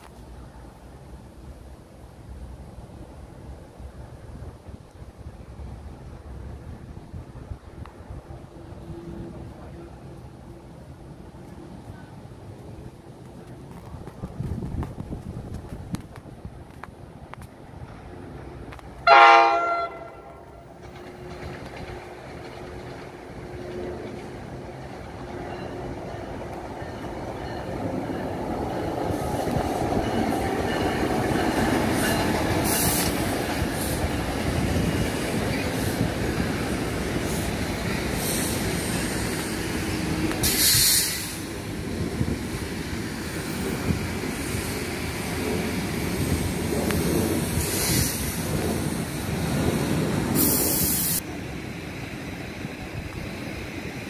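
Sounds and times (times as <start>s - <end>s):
train rumbling on rails: 0.0s - 54.0s
short high hissing burst: 40.4s - 41.5s, 47.6s - 48.4s, 50.3s - 51.2s.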